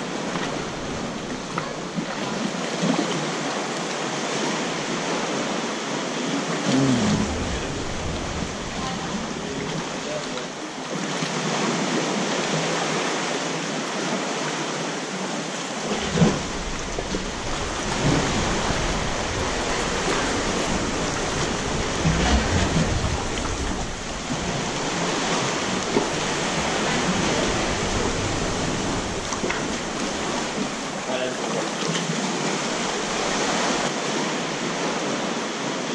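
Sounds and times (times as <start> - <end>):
paddle splashes: 0.0 - 35.9
sea water lapping: 0.0 - 35.9
low rumble: 6.7 - 10.7, 15.9 - 31.1, 32.4 - 33.9.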